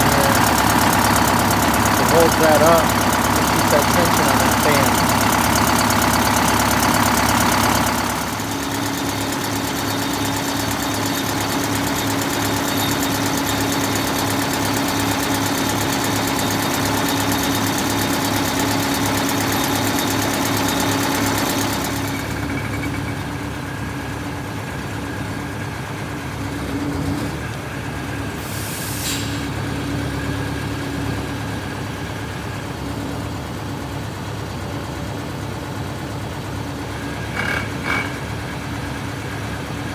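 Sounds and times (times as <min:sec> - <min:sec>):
diesel engine idling: 0:00.0 - 0:39.9
short hiss: 0:28.4 - 0:29.5.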